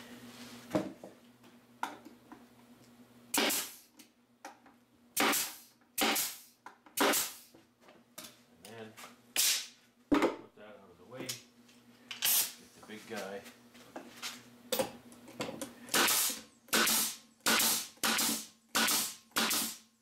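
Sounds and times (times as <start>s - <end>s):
nail gun firing: 3.3s - 3.8s, 5.2s - 7.5s, 9.4s - 9.7s, 15.9s - 19.9s.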